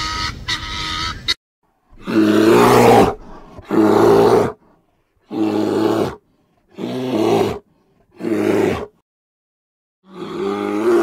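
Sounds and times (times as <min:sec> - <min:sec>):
bear deep calls: 0:01.9 - 0:08.9.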